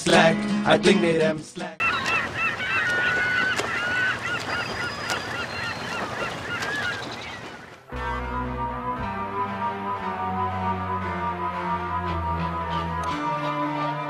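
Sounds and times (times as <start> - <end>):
birds honking: 1.8 - 7.9
sustained music: 7.9 - 14.0.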